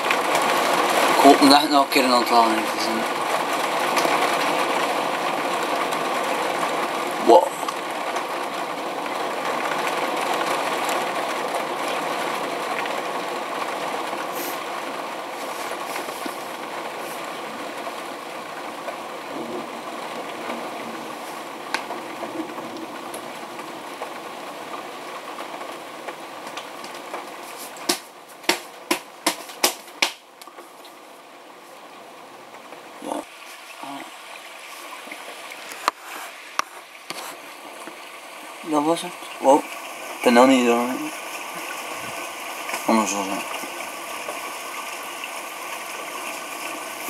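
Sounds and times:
rolling thunder: 0:19.3 - 0:21.2.

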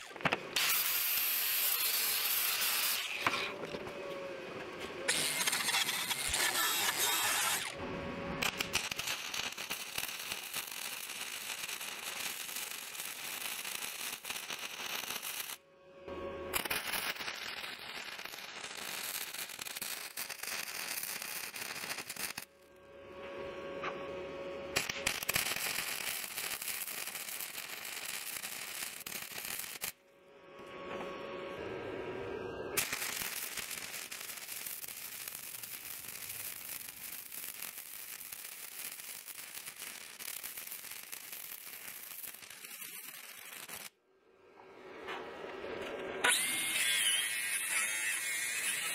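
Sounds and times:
wire welder crackling: 0:00.0 - 0:03.3, 0:05.1 - 0:07.8, 0:08.4 - 0:15.6, 0:16.5 - 0:22.5, 0:24.8 - 0:30.0, 0:32.8 - 0:44.0, 0:45.8 - 0:48.9
angle grinder on steel: 0:05.1 - 0:07.7, 0:46.2 - 0:48.9.

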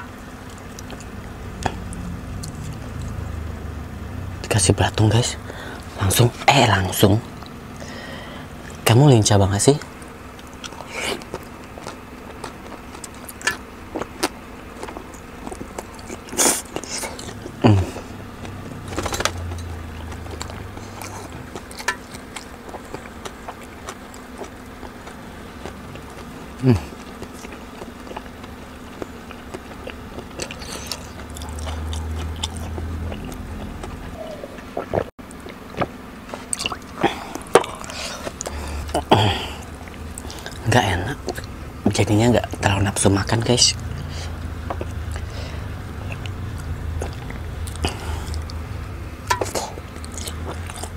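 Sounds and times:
person chewing food: 0:00.0 - 0:03.5, 0:09.8 - 0:42.6, 0:43.8 - 0:50.9.

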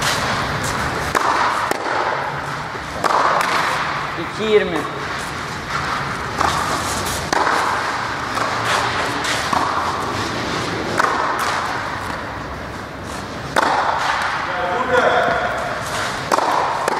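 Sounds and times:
tennis balls hit with rackets: 0:00.0 - 0:16.9
tennis balls bouncing on clay: 0:00.6 - 0:04.0, 0:05.7 - 0:12.4, 0:13.5 - 0:16.9.

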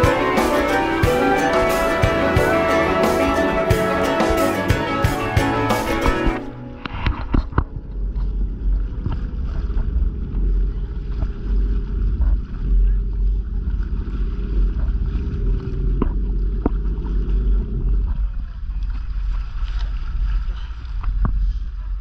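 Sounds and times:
water against boat hull: 0:06.0 - 0:22.0.

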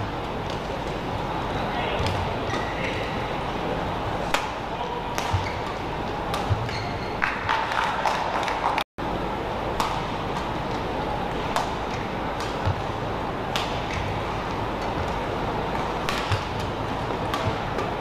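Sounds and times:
sports hall background noise: 0:00.0 - 0:18.0
racket hitting shuttlecock: 0:04.2 - 0:07.4, 0:09.7 - 0:12.9, 0:13.5 - 0:18.0.

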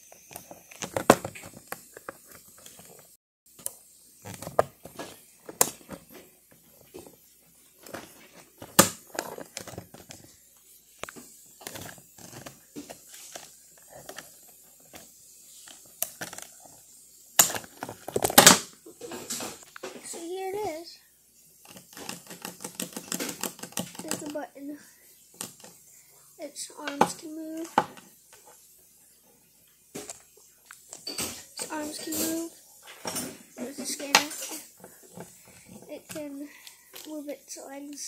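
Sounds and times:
toy packaging crackling: 0:07.8 - 0:10.3, 0:11.0 - 0:16.8, 0:17.4 - 0:18.6, 0:21.6 - 0:24.4.

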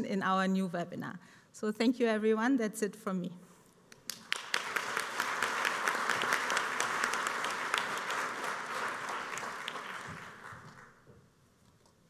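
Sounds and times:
audience applauding: 0:04.0 - 0:11.1.

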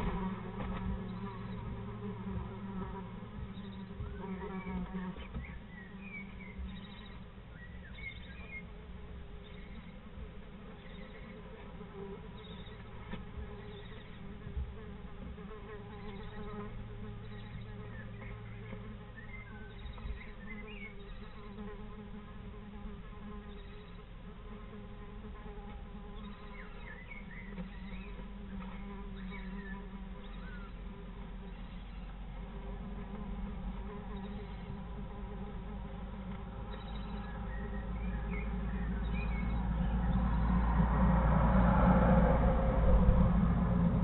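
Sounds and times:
steady buzzing drone: 0:00.0 - 0:44.0.

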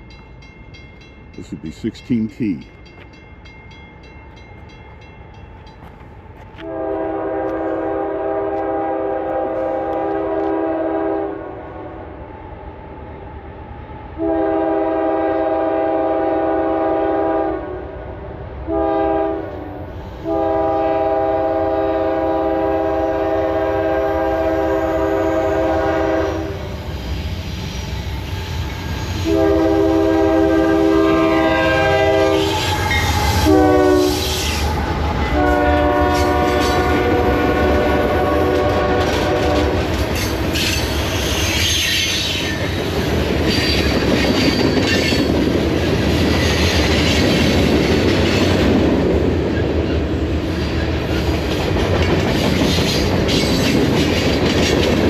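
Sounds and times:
locomotive air horn blasts: 0:06.6 - 0:11.9, 0:14.2 - 0:17.9, 0:18.7 - 0:26.7, 0:29.2 - 0:34.6, 0:35.2 - 0:39.9
wheels clacking over rail joints: 0:34.3 - 0:50.0, 0:51.0 - 0:55.0.

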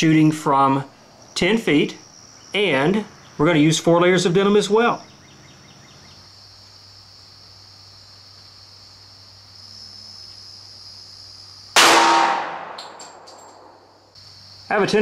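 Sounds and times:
crickets chirping: 0:00.0 - 0:15.0
pistol shot: 0:11.8 - 0:13.7.

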